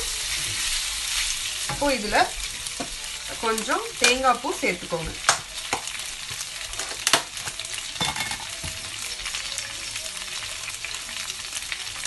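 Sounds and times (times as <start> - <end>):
oil sizzling in a wok: 0.0 - 12.0.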